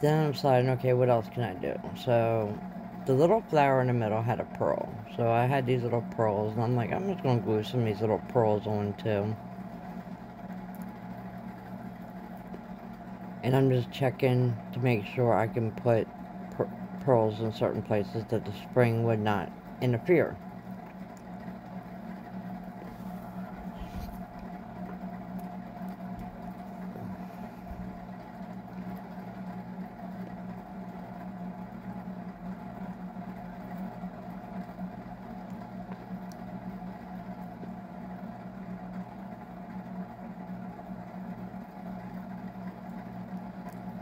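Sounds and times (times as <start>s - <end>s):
steady low hum: 0.0s - 44.0s
faint clicks and taps: 11.6s - 13.2s, 35.4s - 36.4s.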